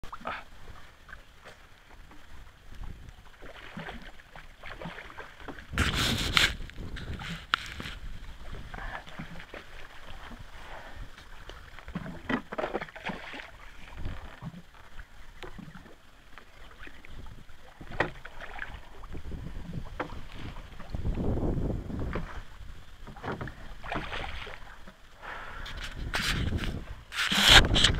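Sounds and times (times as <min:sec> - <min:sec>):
fish splashing in water: 0:03.4 - 0:07.8, 0:11.9 - 0:14.5.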